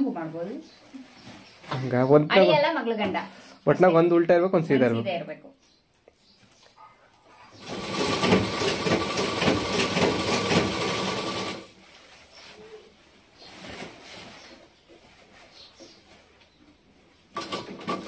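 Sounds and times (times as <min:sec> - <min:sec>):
sewing machine stitching: 0:07.6 - 0:11.7.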